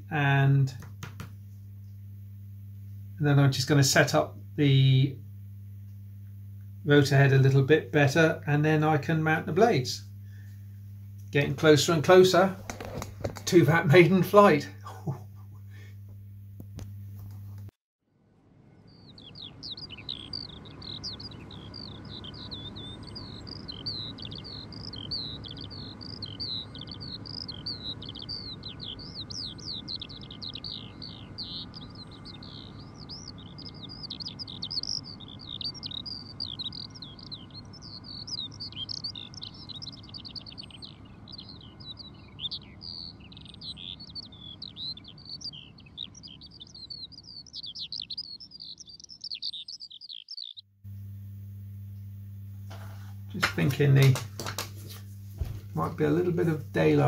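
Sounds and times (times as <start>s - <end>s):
twittering birdsong: 0.0s - 16.0s, 18.4s - 57.0s
faint low hum: 0.0s - 57.0s.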